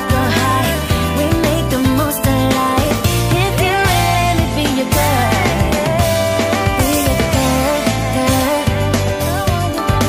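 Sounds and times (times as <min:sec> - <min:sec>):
background pop music: 0:00.0 - 0:10.0.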